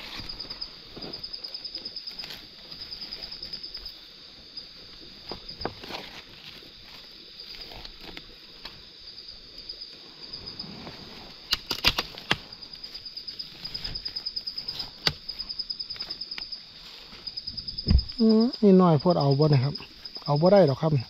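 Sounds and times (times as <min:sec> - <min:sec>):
insects trilling: 0:00.0 - 0:21.0
sharp cracks: 0:11.4 - 0:12.5.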